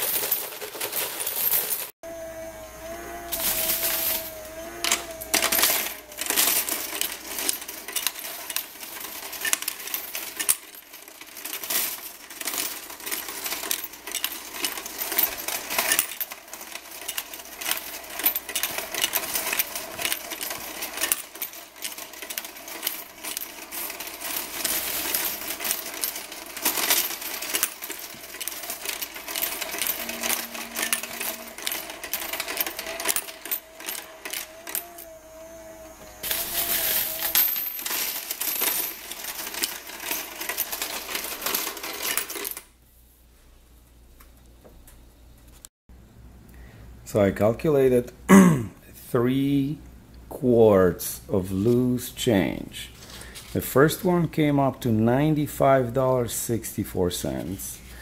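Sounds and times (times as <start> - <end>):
coins clinking: 0.0 - 1.9, 2.6 - 42.7
coin sorter running: 0.0 - 42.7.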